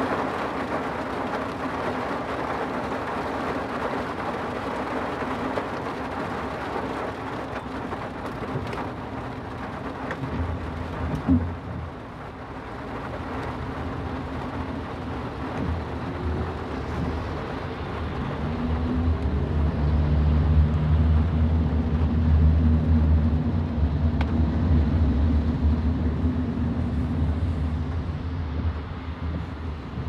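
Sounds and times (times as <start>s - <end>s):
rain hiss: 0.0s - 21.2s
vehicle engine and road rumble: 0.0s - 30.0s.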